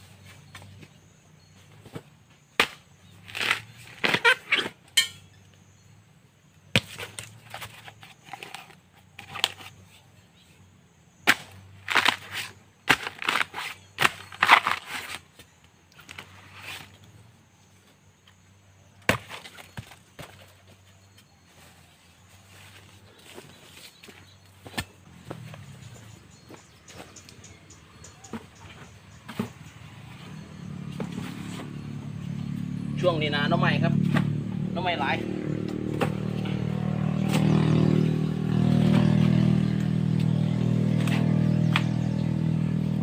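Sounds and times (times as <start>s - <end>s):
bamboo shoot crunching and cracking: 2.6s - 4.8s, 6.7s - 9.8s, 11.2s - 17.1s, 39.8s - 42.0s
blade chopping strikes: 11.2s - 14.9s, 35.6s - 36.6s.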